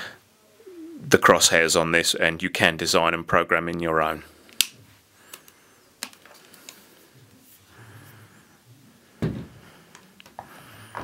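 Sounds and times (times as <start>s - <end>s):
device thump on wooden table: 9.2s - 9.6s.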